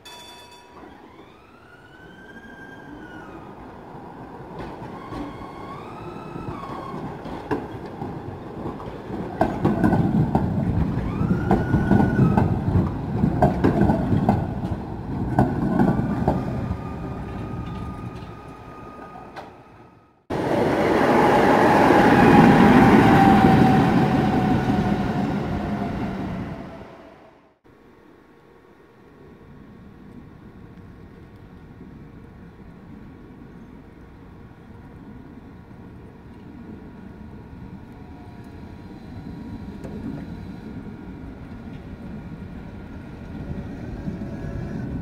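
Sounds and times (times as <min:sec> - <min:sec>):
tram wheels clacking over rails: 0:04.5 - 0:19.7.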